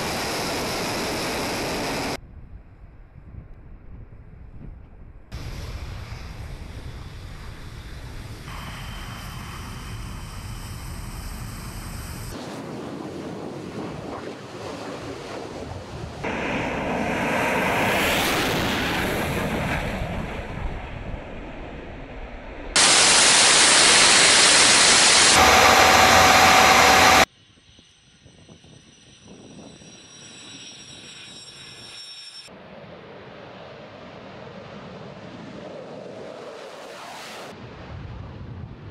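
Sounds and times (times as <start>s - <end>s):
loud jet and airflow rush: 0.0s - 2.2s, 5.4s - 12.7s, 16.2s - 20.6s, 22.7s - 27.3s
engine running with high whine: 5.4s - 12.4s, 16.2s - 28.4s
jet passing by: 5.4s - 27.3s.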